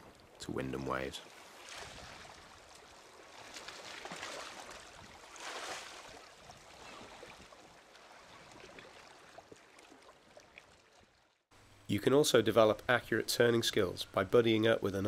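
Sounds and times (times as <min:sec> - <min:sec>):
paddle splashing in water: 0:01.2 - 0:11.4.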